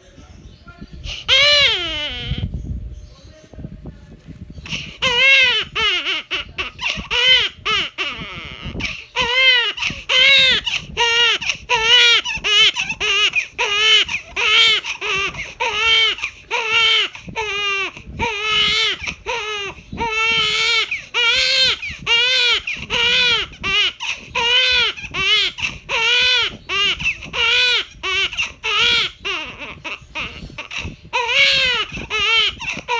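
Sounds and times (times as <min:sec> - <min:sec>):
catches of breath: 0:01.0 - 0:01.3, 0:04.6 - 0:05.0, 0:08.8 - 0:09.2, 0:09.8 - 0:10.1, 0:10.7 - 0:11.7, 0:24.0 - 0:24.4, 0:25.6 - 0:25.9, 0:30.0 - 0:31.1
high-pitched crying wails: 0:01.3 - 0:02.5, 0:05.0 - 0:32.9.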